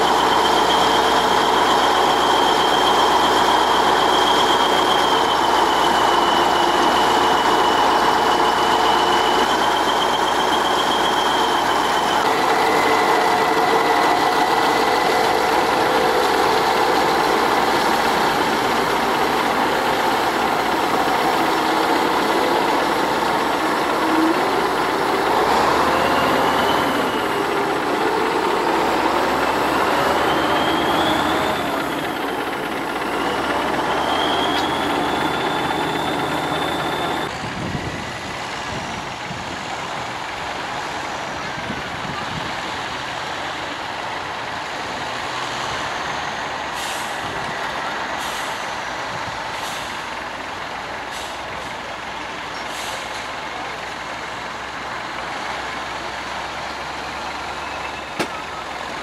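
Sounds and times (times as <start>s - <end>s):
engine revving whine: 0.0s - 39.1s
tractor diesel engine running: 0.0s - 59.0s.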